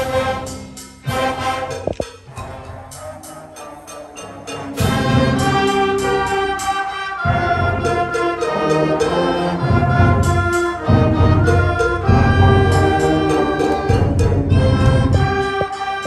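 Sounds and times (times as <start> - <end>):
concert band playing chords: 4.5 - 16.0.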